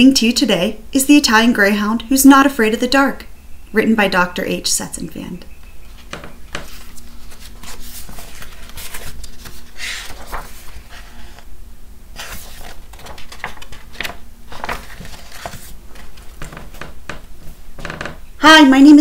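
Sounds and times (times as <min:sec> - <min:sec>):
book pages rustling: 0:05.8 - 0:11.5, 0:12.1 - 0:17.9.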